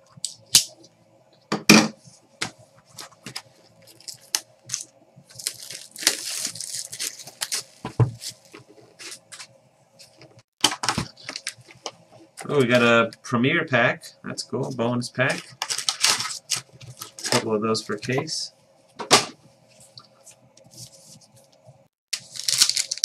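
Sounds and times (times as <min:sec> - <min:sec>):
wrapper tearing and crinkling: 0:03.8 - 0:08.5, 0:15.5 - 0:17.3, 0:22.1 - 0:23.0.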